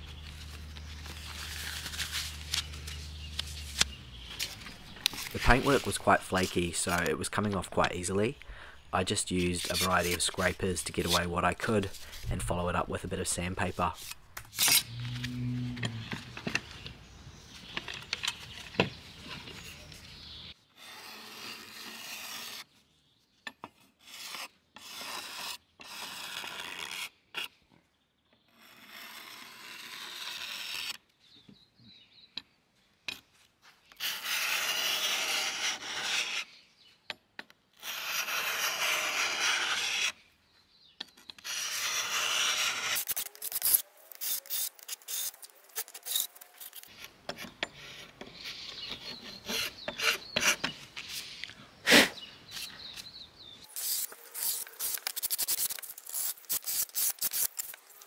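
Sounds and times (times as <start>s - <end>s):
paint scraper rasping on wood: 34.0s - 36.5s, 37.8s - 40.1s, 41.4s - 46.9s.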